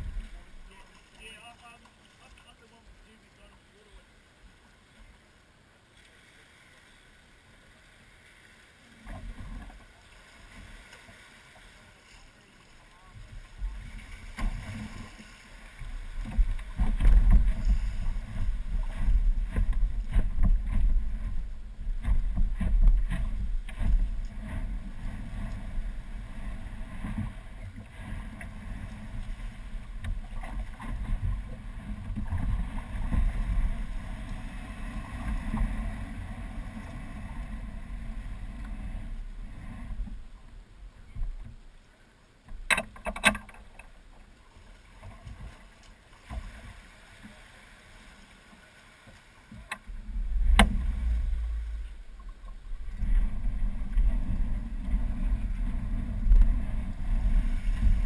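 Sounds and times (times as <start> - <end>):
boat rumbling off trailer: 15.8 - 40.2, 49.8 - 58.0
knocks through boat frame: 16.2 - 21.3, 49.7 - 51.8.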